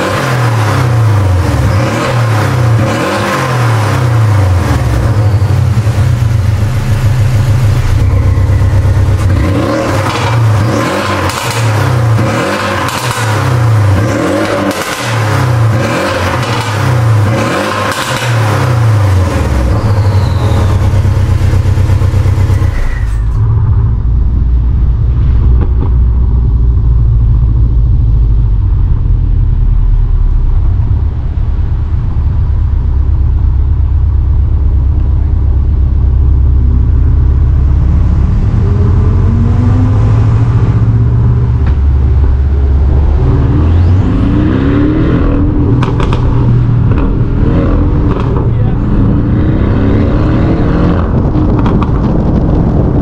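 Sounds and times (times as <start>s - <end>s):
car engine revving: 0.0s - 53.0s
engine droning under way: 0.0s - 53.0s.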